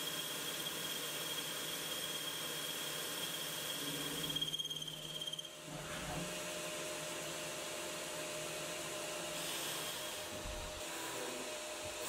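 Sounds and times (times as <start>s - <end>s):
lathe boring metal high whine: 0.0s - 5.8s.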